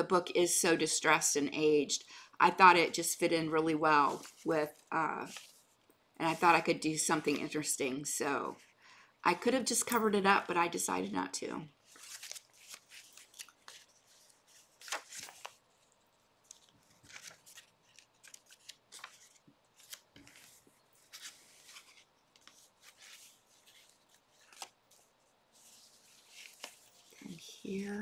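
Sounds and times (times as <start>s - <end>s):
paper pages turning: 4.1s - 6.6s, 11.8s - 28.0s.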